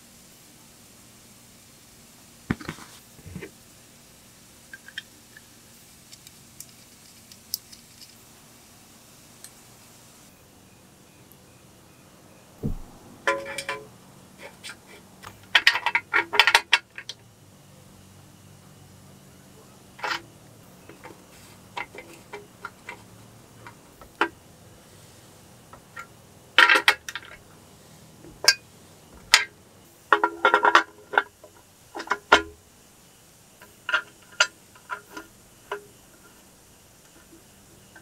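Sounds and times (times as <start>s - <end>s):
metal tools clinking: 13.3s - 13.9s.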